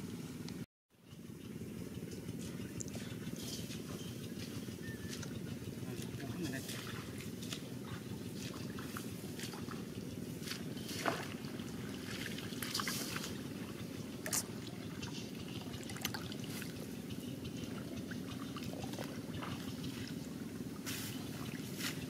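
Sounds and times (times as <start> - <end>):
water splashing and dripping: 11.0 - 16.8.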